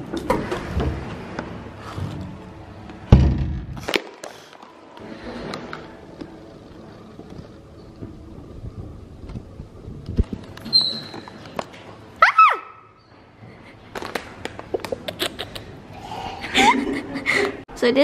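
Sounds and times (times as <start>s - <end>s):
door thudding shut: 3.1s - 3.8s.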